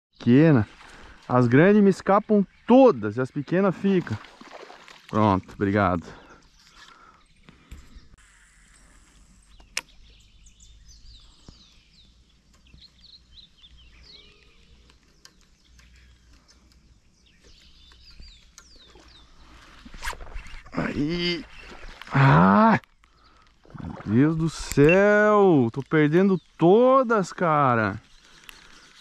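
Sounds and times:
faint bird chirps: 6.2 - 22.0, 23.1 - 25.6.

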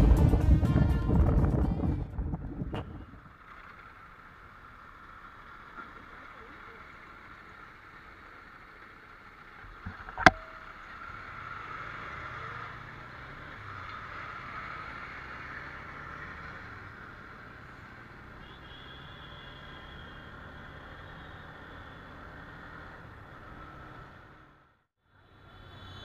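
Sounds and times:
wind rush: 0.0 - 3.3
motorcycle engine: 0.0 - 24.9.

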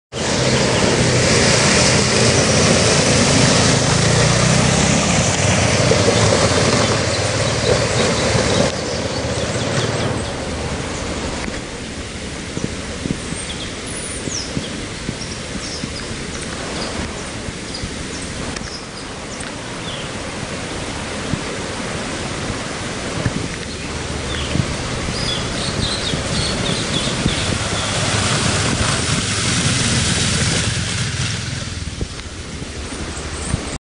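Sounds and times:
river rushing: 0.1 - 33.8
water splashing under wheels: 0.1 - 33.8
motorcycle engine running: 24.3 - 33.8.

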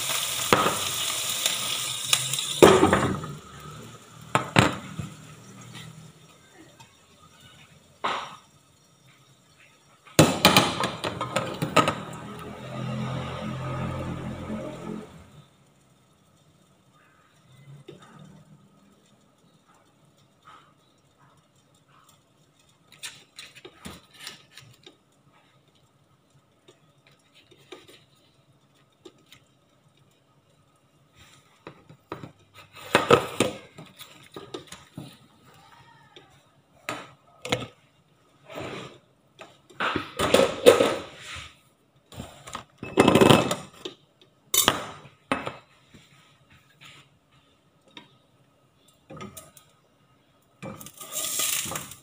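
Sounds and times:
kitchen utensils clinking and clattering: 0.0 - 7.3, 42.3 - 43.9, 44.5 - 45.7, 50.6 - 52.0.

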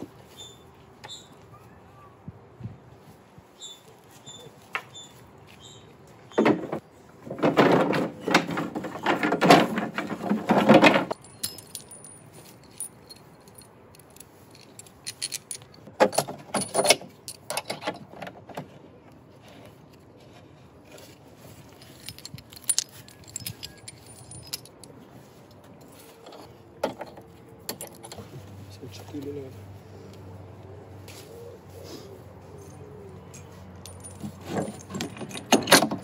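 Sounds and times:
wooden slats clattering: 6.3 - 12.9, 14.6 - 18.8, 25.9 - 28.3, 33.9 - 36.0
light clinks and knocks: 6.3 - 18.8, 20.9 - 29.4, 32.6 - 36.0.

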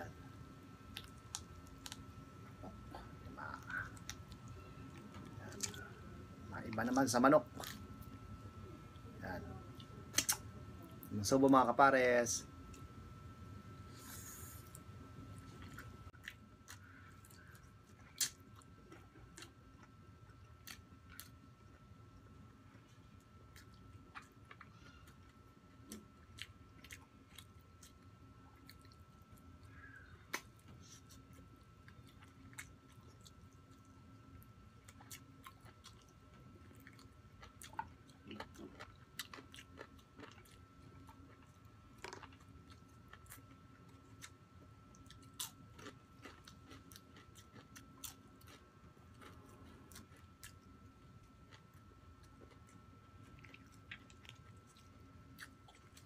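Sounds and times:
chewing crispy chicken skin: 15.5 - 56.0.

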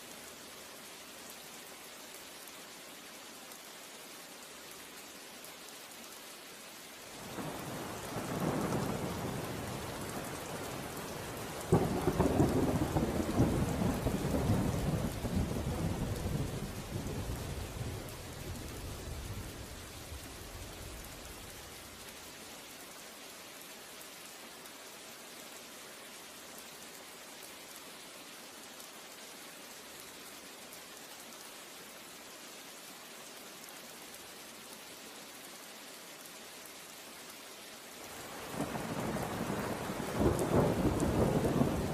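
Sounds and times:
steady rain: 0.0 - 41.9
thunder rumbling: 38.5 - 41.9.

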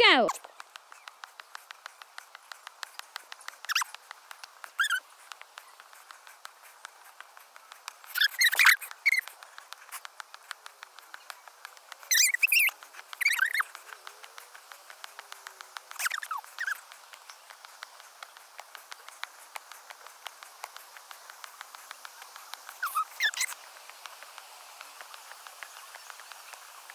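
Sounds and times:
rapid footsteps on stone steps: 0.3 - 26.9
high squeaky chirps: 3.6 - 3.9, 4.8 - 5.0, 8.1 - 9.3, 12.1 - 13.7, 15.9 - 16.8, 22.8 - 23.6.

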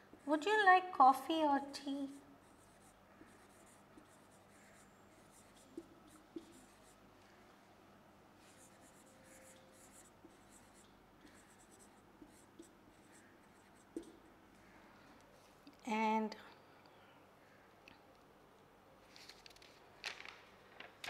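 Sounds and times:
marker scratching on whiteboard: 2.1 - 7.0, 8.4 - 14.2
marker tip tapping board: 13.9 - 14.2.

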